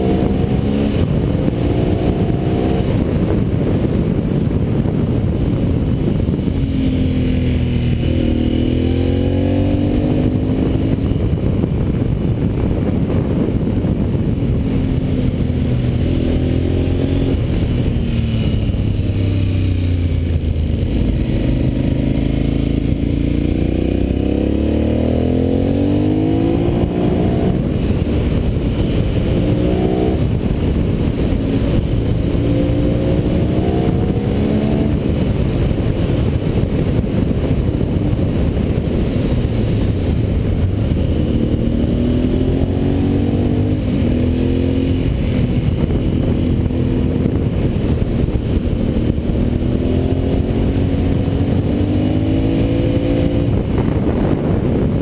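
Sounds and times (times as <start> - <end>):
motorcycle engine accelerating: 0.0 - 55.0
wind rumble on microphone: 0.0 - 55.0.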